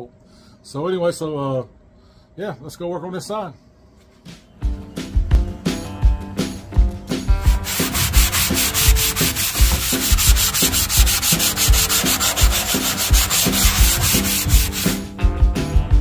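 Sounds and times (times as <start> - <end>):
sanding sponge rasping on metal: 7.5 - 15.0.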